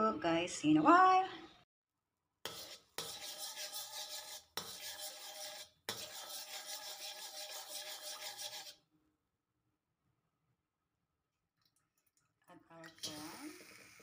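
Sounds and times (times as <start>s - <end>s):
spatula scraping a wok: 2.4s - 8.8s.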